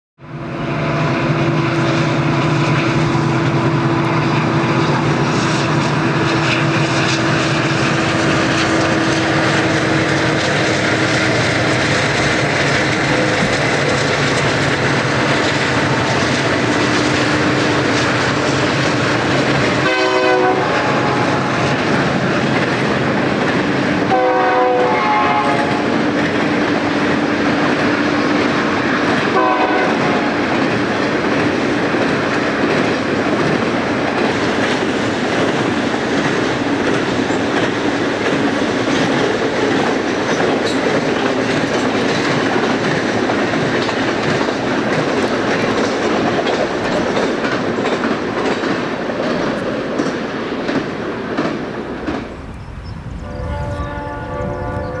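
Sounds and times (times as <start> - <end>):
train horn blast: 0.2 - 13.6, 14.9 - 21.8, 24.0 - 26.2, 29.2 - 30.5, 53.2 - 55.0
diesel locomotive drone: 0.2 - 55.0
train wheels clattering on rails: 0.9 - 55.0.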